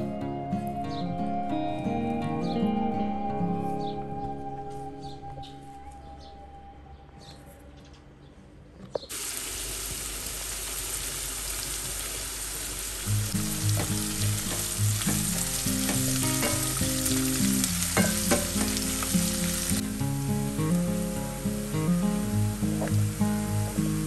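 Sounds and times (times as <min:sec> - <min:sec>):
background music: 0:00.0 - 0:07.5, 0:13.1 - 0:24.0
onions sizzling in oil: 0:09.1 - 0:24.0.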